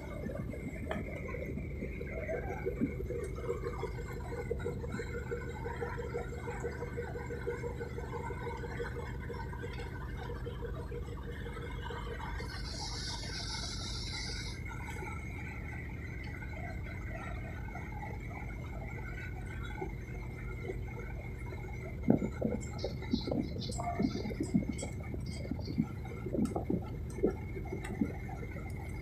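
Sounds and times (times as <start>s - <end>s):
fast pulsing hum: 0.0s - 29.0s
high whine: 0.0s - 29.0s.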